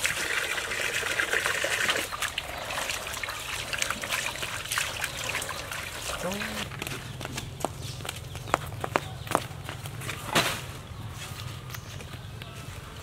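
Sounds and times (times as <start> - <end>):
water trickling: 0.0 - 6.9.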